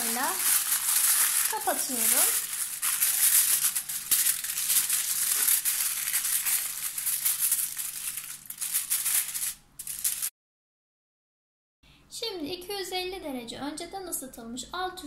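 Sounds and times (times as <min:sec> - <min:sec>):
aluminium foil crinkling: 0:00.0 - 0:10.3.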